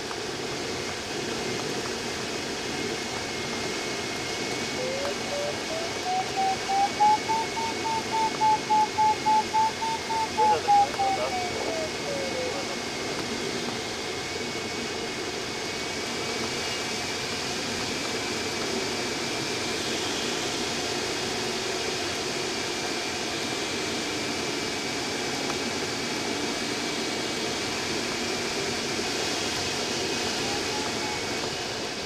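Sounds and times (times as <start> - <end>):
faint steady high tone: 4.8 - 12.8.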